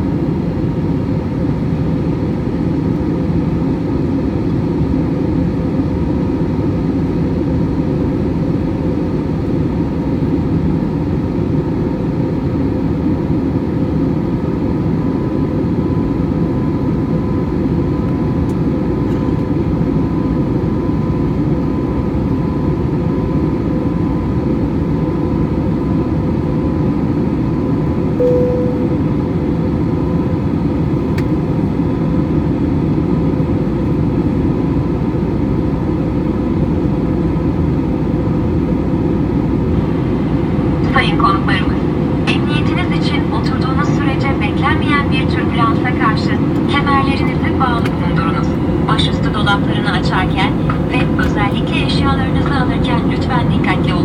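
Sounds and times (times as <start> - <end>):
jet engine cabin noise: 0.0 - 54.0
short tone: 28.2 - 29.6.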